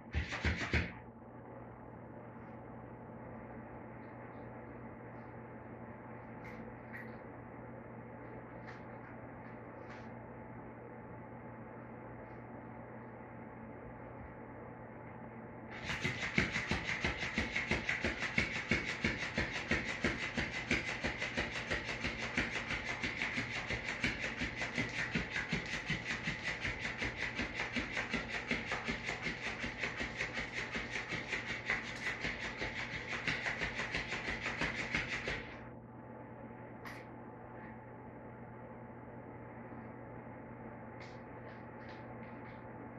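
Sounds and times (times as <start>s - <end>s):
toy tail flapping on tile floor: 0.1s - 1.0s, 15.7s - 35.6s.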